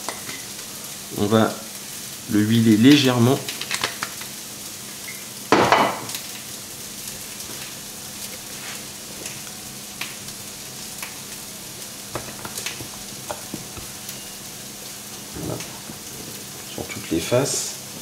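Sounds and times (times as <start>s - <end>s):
food sizzling in a frying pan: 0.0s - 18.0s
small crackles: 3.0s - 5.2s, 6.1s - 17.0s.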